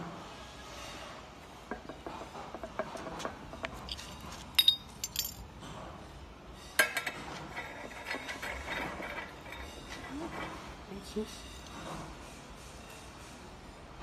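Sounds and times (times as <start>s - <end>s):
metal parts clinking: 3.6s - 5.5s.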